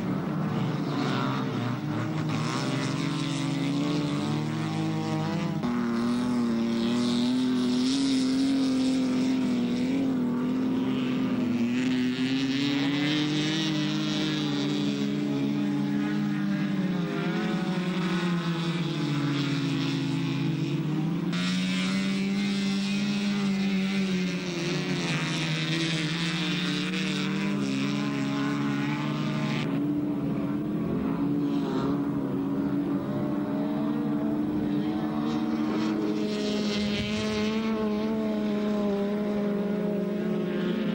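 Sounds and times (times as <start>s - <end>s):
race car engines revving: 0.0s - 40.9s.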